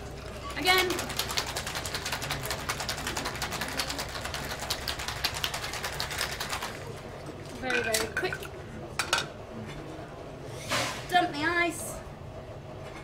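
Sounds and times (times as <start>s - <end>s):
ice rattling in cocktail shaker: 0.2s - 6.9s.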